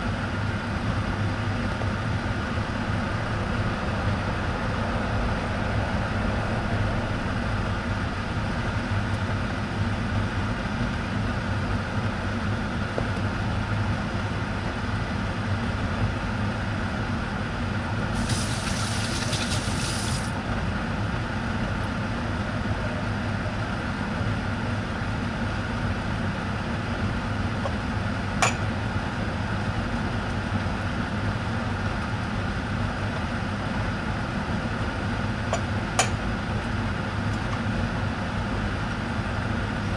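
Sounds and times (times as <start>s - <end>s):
bread sizzling in a pan: 18.2s - 20.3s
high hiss burst: 18.2s - 20.3s.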